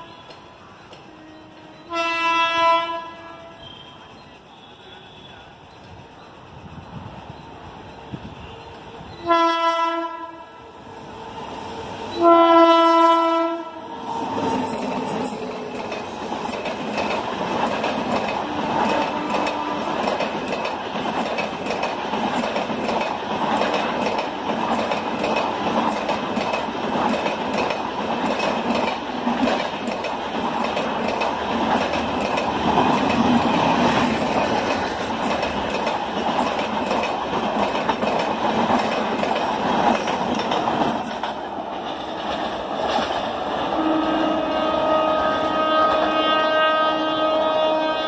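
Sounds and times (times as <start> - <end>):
train wheels on track rushing: 0.0 - 48.0
wheels clicking over rail joints: 14.2 - 43.8.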